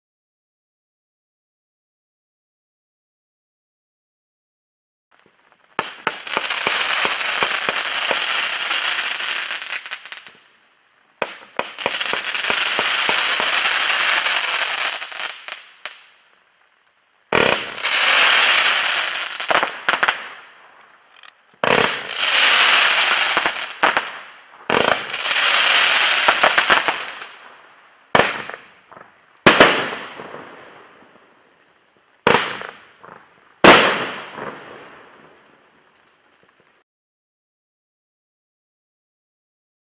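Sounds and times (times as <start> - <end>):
fireworks crackling: 5.1 - 36.8
fireworks launching: 5.2 - 16.3, 17.3 - 31.6, 32.2 - 36.8.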